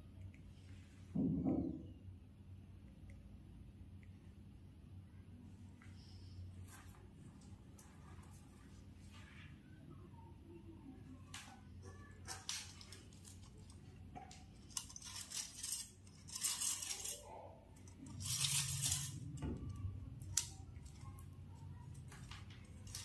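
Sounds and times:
faint low hum: 0.0 - 23.0
led strip rustling and scraping: 12.0 - 21.2, 21.9 - 23.0.

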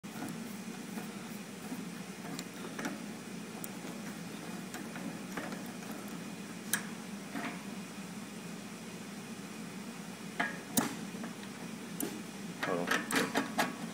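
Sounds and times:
low machine hum: 0.0 - 13.9.

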